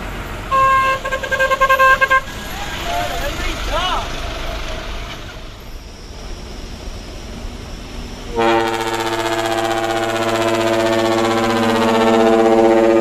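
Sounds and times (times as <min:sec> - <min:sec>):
truck cab rumble: 0:00.0 - 0:13.0
truck horn chord: 0:00.5 - 0:02.4, 0:08.3 - 0:13.0.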